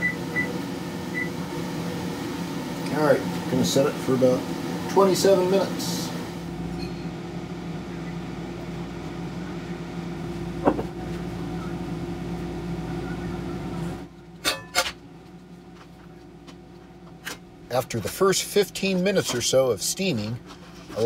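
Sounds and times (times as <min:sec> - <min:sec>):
pot steaming hum: 0:00.0 - 0:14.1.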